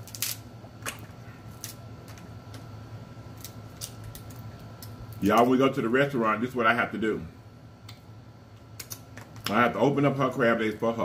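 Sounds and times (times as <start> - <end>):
crab shells cracking: 3.3 - 5.2.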